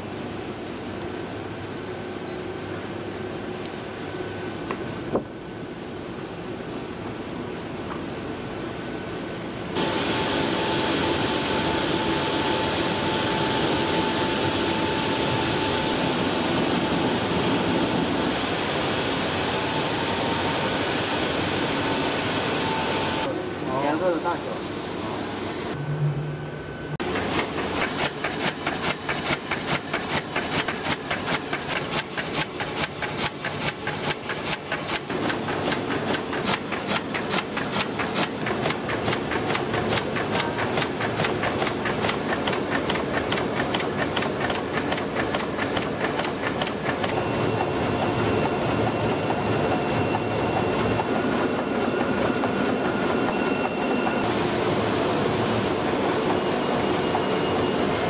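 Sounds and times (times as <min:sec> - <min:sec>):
machine whir: 0:09.8 - 0:23.4, 0:25.2 - 0:58.0
faint high whine: 0:09.8 - 0:27.0
printing press clattering: 0:27.0 - 0:57.9.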